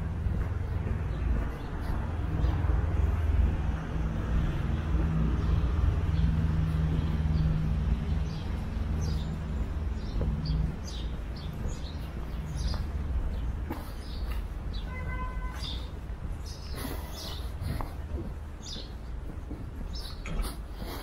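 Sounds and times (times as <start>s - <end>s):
vehicle engine running: 0.0s - 13.7s
small birds chirping: 0.0s - 21.0s.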